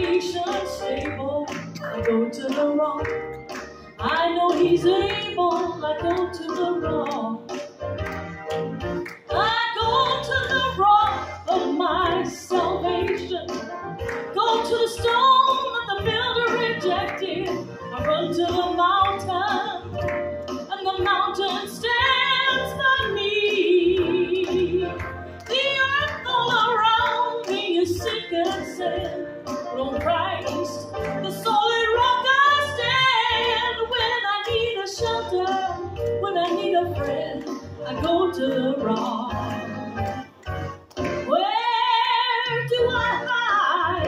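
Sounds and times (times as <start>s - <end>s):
woman singing with vibrato: 0.0s - 3.1s, 4.0s - 7.4s, 9.4s - 13.6s, 14.4s - 19.9s, 20.7s - 39.6s, 41.3s - 44.0s
amplified instrumental backing: 0.0s - 44.0s.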